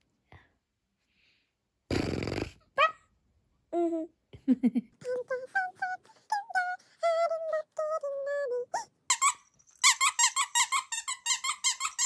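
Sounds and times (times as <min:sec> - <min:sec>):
squeaky toy squeaking: 0:08.8 - 0:12.0.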